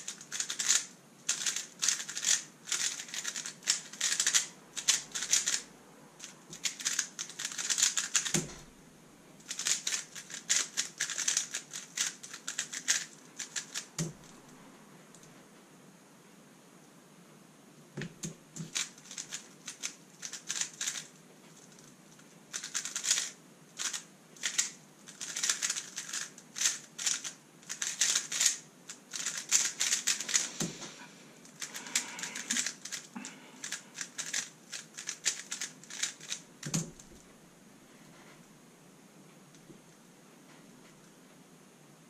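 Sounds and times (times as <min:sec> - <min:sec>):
puzzle cube plastic clicking: 0:00.0 - 0:05.6, 0:06.2 - 0:08.6, 0:09.4 - 0:14.3, 0:18.0 - 0:21.1, 0:22.5 - 0:30.5, 0:31.5 - 0:37.1.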